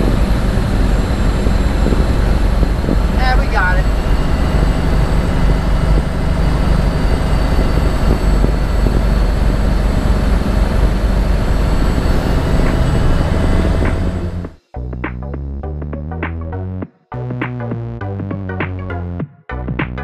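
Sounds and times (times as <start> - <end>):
road and cab noise: 0.0 - 14.7
diesel truck engine running: 0.0 - 15.0.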